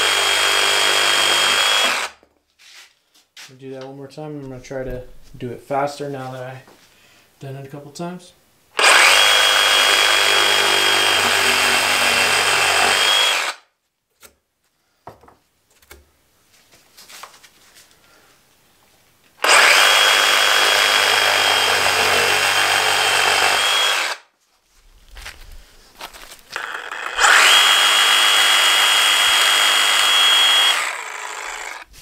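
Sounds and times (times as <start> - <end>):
reciprocating saw cutting cardboard: 0.0 - 2.2, 8.8 - 13.6, 19.4 - 24.2, 26.5 - 31.9.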